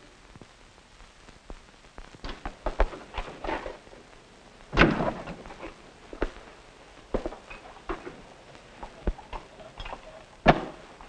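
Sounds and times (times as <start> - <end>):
door shutting with thud: 4.8 - 5.4.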